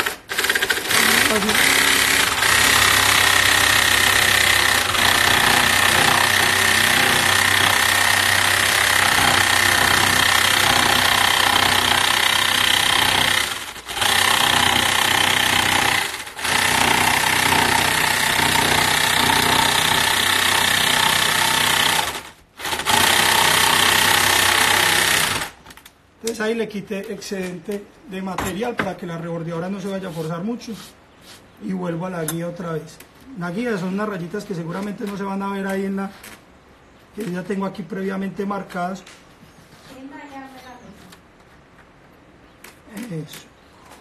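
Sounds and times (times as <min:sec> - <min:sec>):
electric jigsaw cutting wood: 0:00.0 - 0:25.6.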